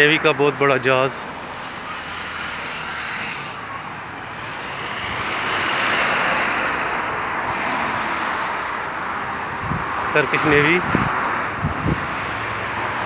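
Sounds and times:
vehicle passing: 0.3s - 13.0s.

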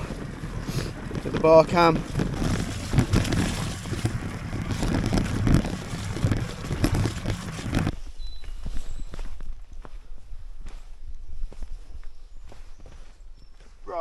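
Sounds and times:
bike rattling knocks: 0.0s - 7.9s
bike tyre noise: 0.0s - 11.9s
wind buffeting microphone: 0.0s - 12.6s.

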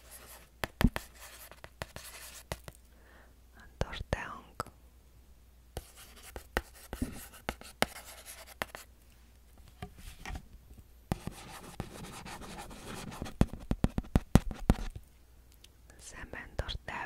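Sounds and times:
stylus scratching on tablet: 0.0s - 2.7s, 5.8s - 8.9s, 11.1s - 14.9s.

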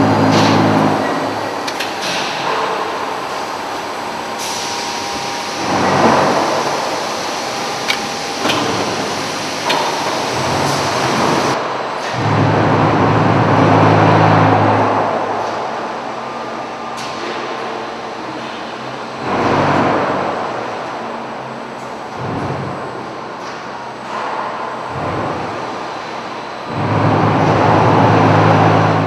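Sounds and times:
low motor drone: 0.0s - 2.6s, 26.7s - 29.0s
steady machine noise: 0.0s - 23.3s, 23.9s - 29.0s.

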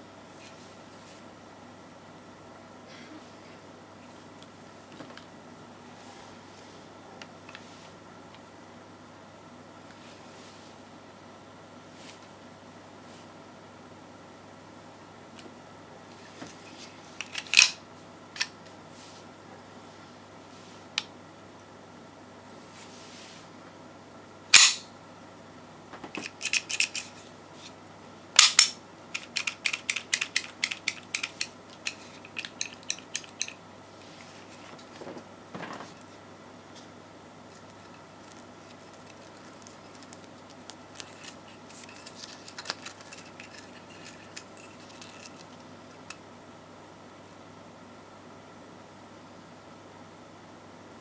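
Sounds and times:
pistol metallic clacks: 24.6s - 24.8s.

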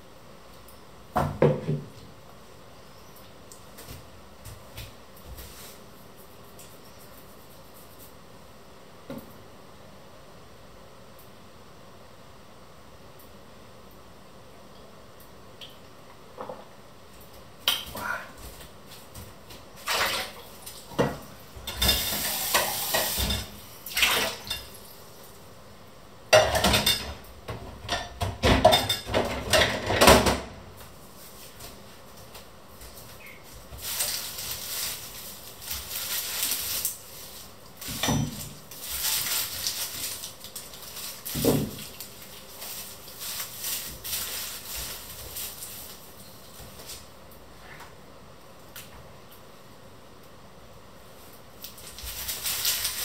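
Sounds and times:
dishes and pots clattering: 21.0s - 24.8s, 26.3s - 30.5s.

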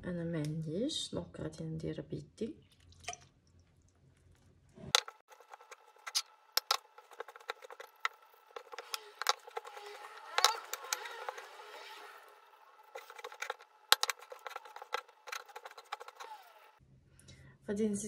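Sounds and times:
hand squishing dough in bowl: 12.8s - 16.7s.

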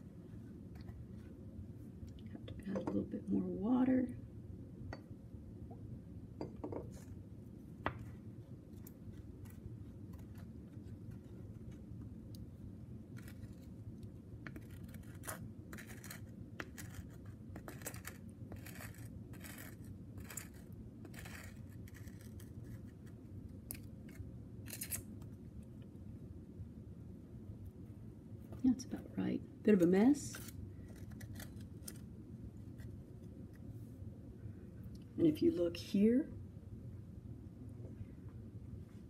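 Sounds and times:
steady low hum: 0.0s - 39.0s
clay scraping in glass beaker: 14.4s - 23.1s.

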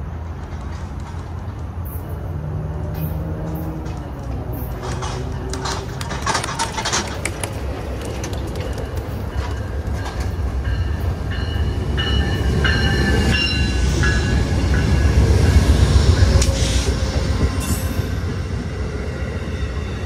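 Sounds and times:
diesel locomotive engine: 0.0s - 20.0s
clicks from rails: 2.9s - 10.3s.

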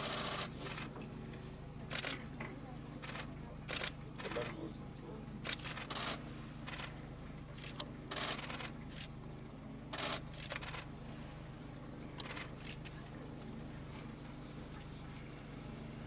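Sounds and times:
steady low hum: 0.0s - 16.0s
camera shutters firing: 5.5s - 6.9s, 7.6s - 9.1s, 9.9s - 10.9s.

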